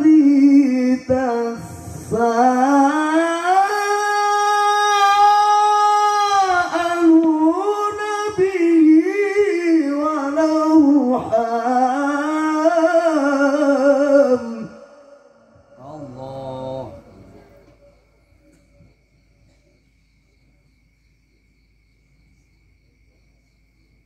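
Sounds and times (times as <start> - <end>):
man reciting melodically through microphone: 0.0 - 17.9.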